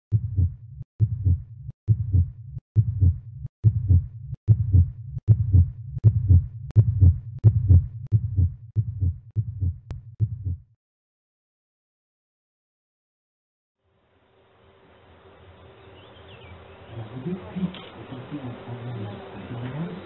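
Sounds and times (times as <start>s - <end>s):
heartbeat thumps: 0.1s - 10.8s.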